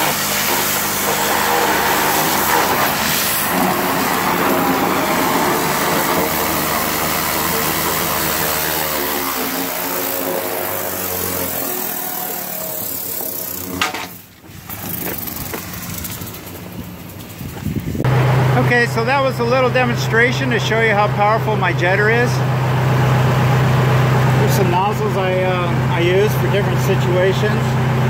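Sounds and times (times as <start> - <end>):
water jet spraying on wood: 0.0 - 17.4
engine running: 0.0 - 28.0.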